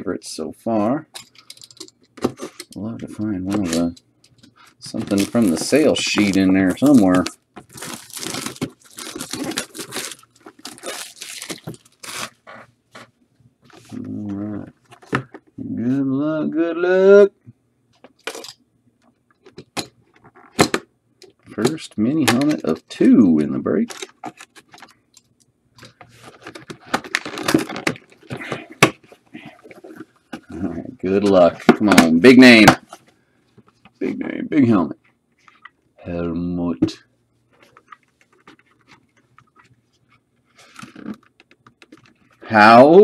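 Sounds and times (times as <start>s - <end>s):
packaging tearing and crinkling: 4.9s - 12.6s.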